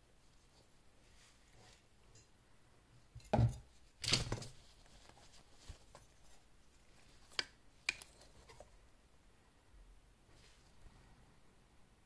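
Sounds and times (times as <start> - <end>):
brushing rustle: 0.4 - 2.0, 4.5 - 7.4.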